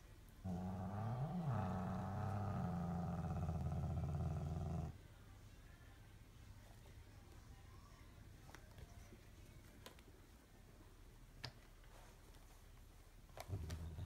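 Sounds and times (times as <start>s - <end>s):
cat growling: 0.4s - 5.0s, 13.4s - 14.0s.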